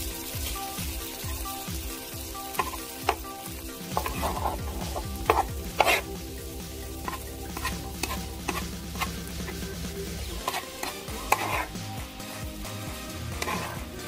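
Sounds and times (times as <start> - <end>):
rice sizzling on griddle: 0.0 - 14.0
utensils scraping pan: 3.9 - 6.2, 7.0 - 11.9, 13.3 - 14.0.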